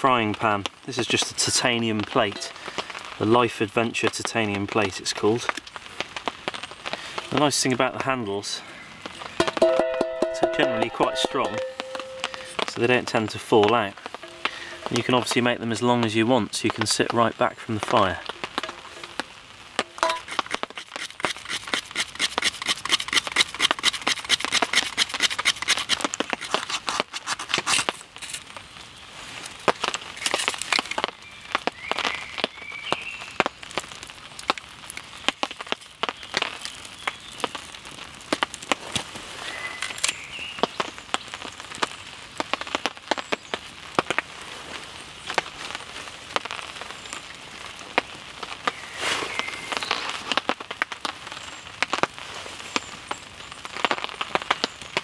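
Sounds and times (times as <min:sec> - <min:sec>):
fire crackling and snapping: 0:00.0 - 0:55.0
dry twigs handled: 0:18.3 - 0:28.6, 0:29.4 - 0:31.2.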